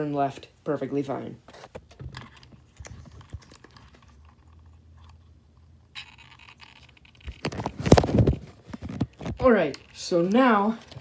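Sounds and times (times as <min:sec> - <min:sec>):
plastic clicks and scrapes: 0:01.5 - 0:05.3, 0:06.0 - 0:11.0
plastic clatter: 0:01.6 - 0:05.2, 0:06.0 - 0:11.0.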